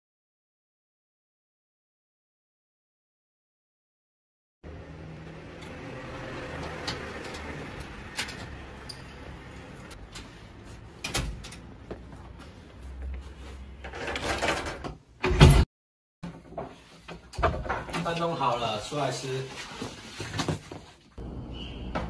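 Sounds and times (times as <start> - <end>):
rustling noise: 19.0 - 21.2.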